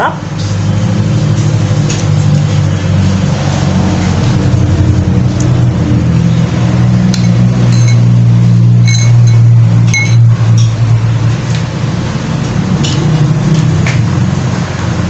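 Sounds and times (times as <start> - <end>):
steady low hum: 0.4 - 12.8
spoon clinking glass bowl: 7.2 - 10.7.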